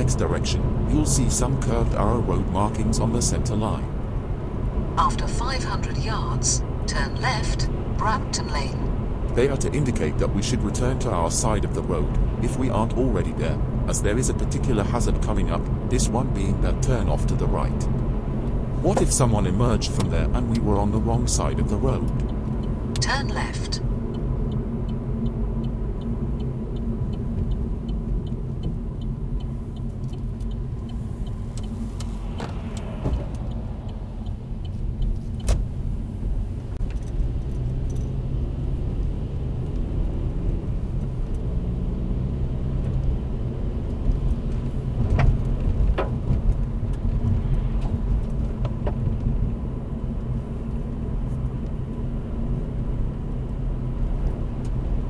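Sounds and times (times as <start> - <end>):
car engine and tyre noise: 0.0 - 55.0
turn indicator ticking: 17.8 - 55.0.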